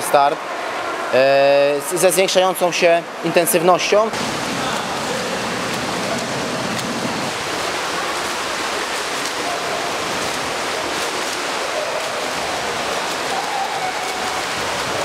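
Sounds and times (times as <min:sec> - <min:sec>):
swimmer splashing water: 0:04.0 - 0:15.0.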